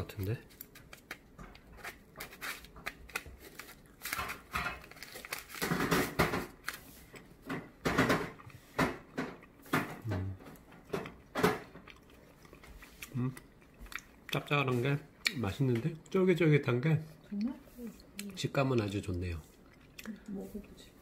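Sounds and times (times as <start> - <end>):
person chewing: 8.3 - 16.2, 17.1 - 21.0.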